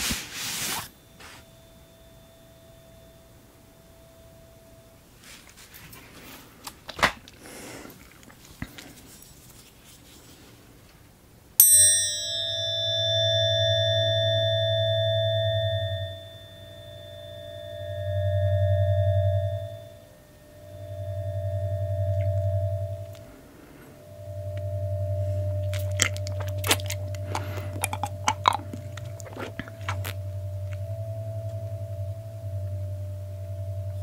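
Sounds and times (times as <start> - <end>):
tuning forks ringing: 0.9 - 5.2, 11.6 - 34.0
low hum: 12.6 - 34.0
handling noise: 25.3 - 30.1.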